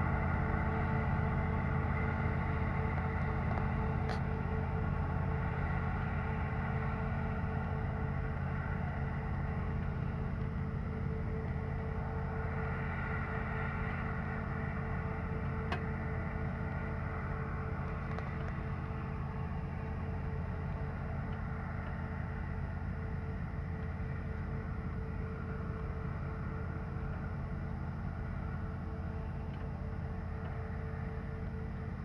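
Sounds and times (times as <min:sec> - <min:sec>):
combine harvester droning: 0:00.0 - 0:32.0.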